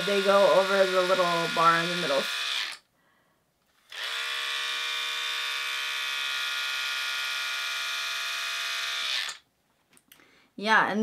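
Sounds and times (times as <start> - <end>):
hair trimmer motor humming: 0.0 - 2.9, 3.9 - 9.4.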